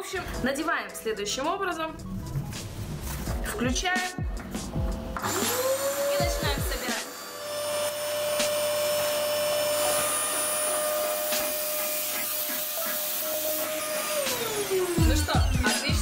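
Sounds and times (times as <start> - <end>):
vacuum cleaner motor whine: 5.1 - 16.0.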